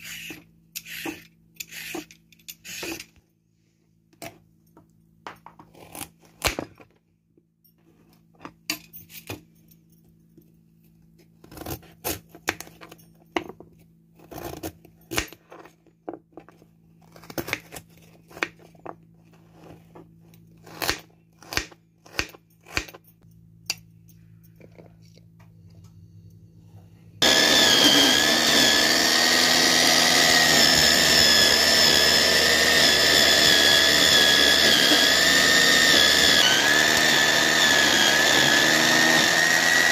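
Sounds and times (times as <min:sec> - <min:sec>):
electric food chopper whining: 0:27.2 - 0:39.9.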